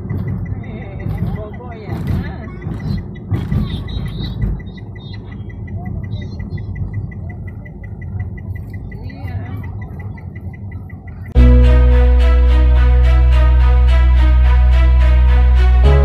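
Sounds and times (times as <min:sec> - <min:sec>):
fast regular ticking: 0:00.0 - 0:11.4
car engine and tyres rumbling: 0:00.0 - 0:16.0
loud music: 0:11.4 - 0:16.0.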